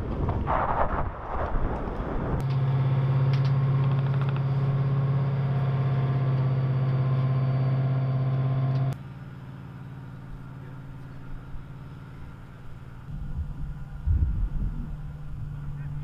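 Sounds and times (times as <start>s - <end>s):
low rumble of demolition blast: 0.0s - 8.2s, 10.1s - 16.0s
diesel engine idling: 2.6s - 16.0s
sharp clicks: 3.3s - 4.5s.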